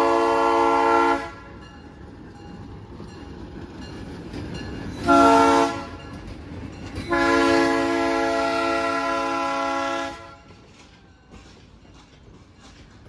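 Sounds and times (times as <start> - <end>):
locomotive horn chord blasts: 0.0 - 1.5, 5.0 - 6.0, 7.1 - 10.5.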